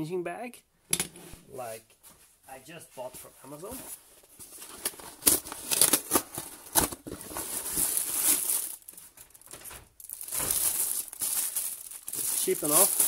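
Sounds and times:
plastic packaging crinkling: 0:04.2 - 0:13.0.

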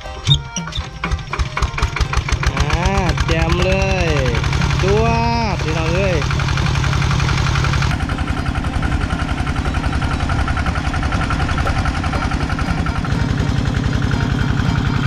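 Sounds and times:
engine-driven water pump running: 0:00.0 - 0:15.0.

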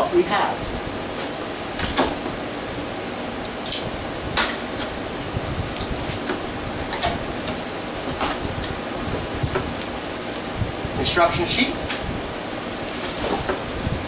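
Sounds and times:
steady background hum: 0:00.0 - 0:14.0
cardboard snaps and crackles: 0:05.8 - 0:08.8.

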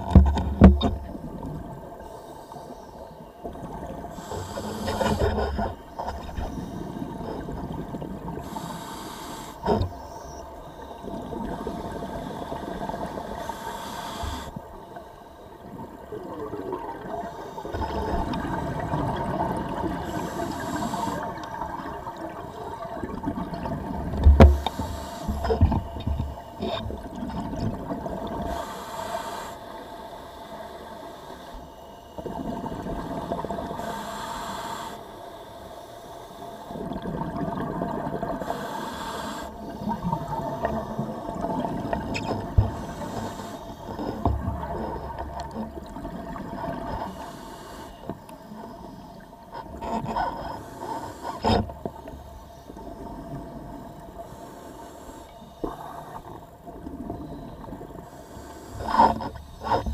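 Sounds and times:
regulator hissing inhale: 0:02.0 - 0:03.3, 0:04.1 - 0:05.7, 0:08.4 - 0:11.0, 0:11.6 - 0:15.4, 0:20.0 - 0:21.5, 0:24.6 - 0:25.6, 0:28.4 - 0:32.2, 0:33.0 - 0:36.7, 0:38.4 - 0:40.2, 0:42.5 - 0:45.0, 0:46.9 - 0:49.3, 0:50.2 - 0:52.8, 0:53.8 - 0:56.4, 0:57.2 - 0:59.9.

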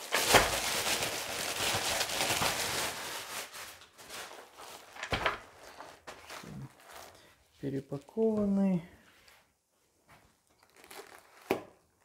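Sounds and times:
plastic mailer bag crinkling: 0:00.0 - 0:07.4, 0:10.5 - 0:12.0.

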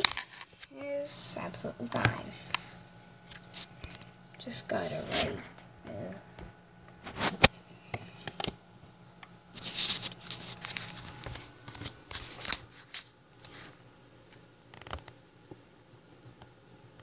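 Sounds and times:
paper rustling: 0:09.6 - 0:13.8.

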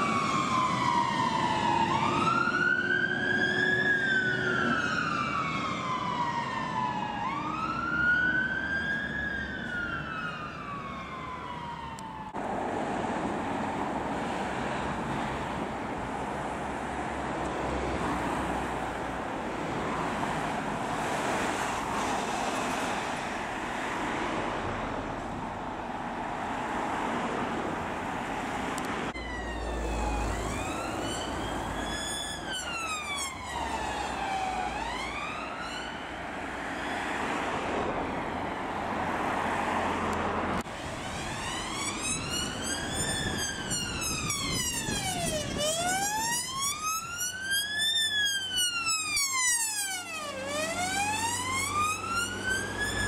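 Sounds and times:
ambulance siren wailing: 0:00.0 - 0:12.4, 0:29.1 - 0:39.9, 0:40.6 - 0:53.0
police siren wailing: 0:00.0 - 0:12.4, 0:29.2 - 0:39.9, 0:40.6 - 0:53.0
road traffic noise: 0:00.0 - 0:53.0.

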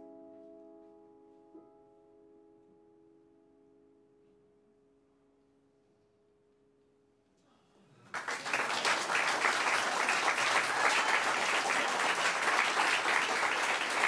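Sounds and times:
audience applause: 0:08.1 - 0:14.0.

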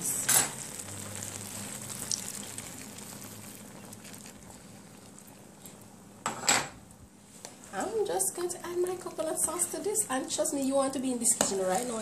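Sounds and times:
food sizzling in a pot: 0:00.0 - 0:04.9
liquid pouring into a pot: 0:00.6 - 0:05.2.

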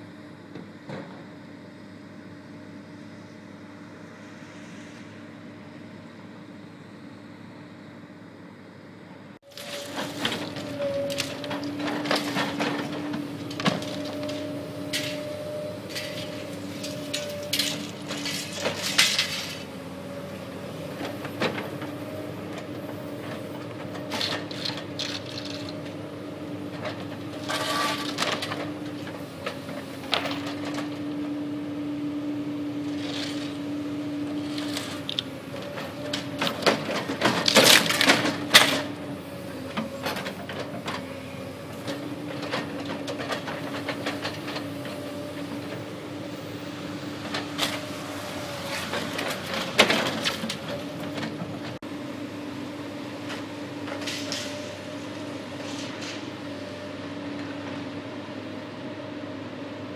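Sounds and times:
machine engine humming: 0:02.4 - 0:59.3
wood and debris crashing: 0:09.5 - 0:15.1, 0:36.2 - 0:38.9.

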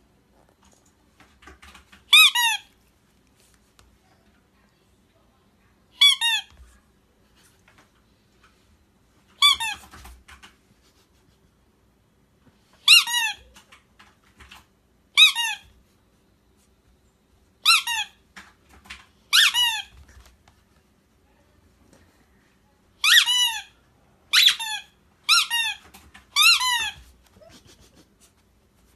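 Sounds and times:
rubber squeaky toy squeaking: 0:02.1 - 0:02.7, 0:06.0 - 0:06.6, 0:09.4 - 0:09.9, 0:12.8 - 0:13.5, 0:15.2 - 0:15.7, 0:17.6 - 0:18.2, 0:19.3 - 0:20.0, 0:23.0 - 0:27.6.

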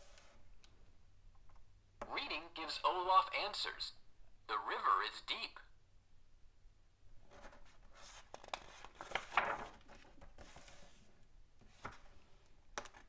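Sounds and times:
book page turning: 0:07.3 - 0:11.0.

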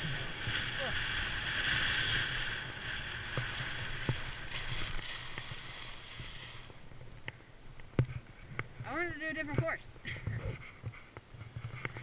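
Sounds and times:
skis scraping over snow: 0:00.0 - 0:07.1.

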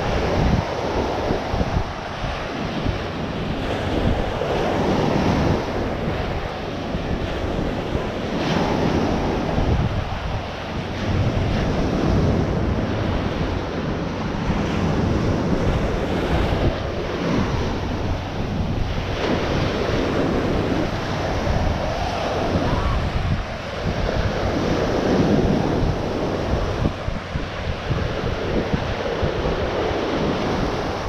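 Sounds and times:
ocean surf breaking: 0:00.0 - 0:31.0
wind buffeting microphone: 0:00.0 - 0:31.0.

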